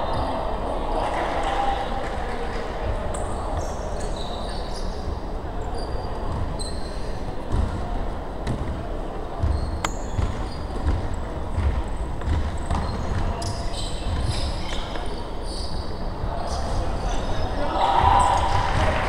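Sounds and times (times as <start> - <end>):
voices in echoing gym: 0.0 - 19.0
sneaker squeaks: 3.2 - 8.8, 9.4 - 19.0
basketball bouncing: 9.4 - 13.3.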